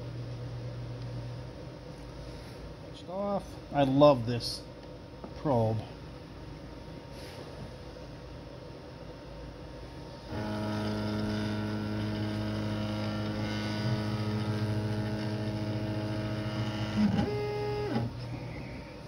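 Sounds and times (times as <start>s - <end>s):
stepper motor whining: 10.3s - 19.0s.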